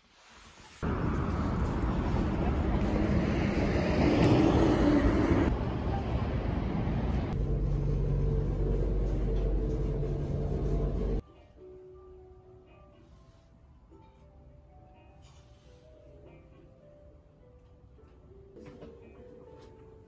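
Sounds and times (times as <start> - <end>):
low hum: 0.8 - 11.2
road traffic noise: 0.8 - 11.2.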